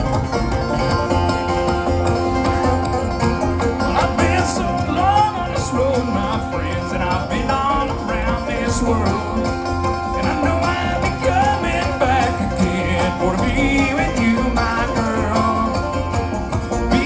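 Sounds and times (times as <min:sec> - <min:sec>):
acoustic guitar: 0:00.0 - 0:17.0
mandolin: 0:00.0 - 0:17.0
picked banjo: 0:00.0 - 0:17.0
person singing: 0:03.9 - 0:16.2.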